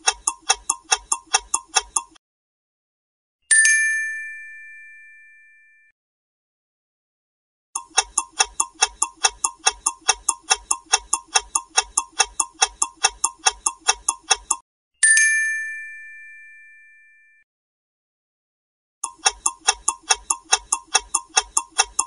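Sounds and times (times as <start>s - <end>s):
clock ticking quickly: 0.0s - 2.2s, 7.8s - 14.6s, 19.0s - 22.0s
bright bell-like ding: 3.5s - 5.9s, 15.0s - 17.4s.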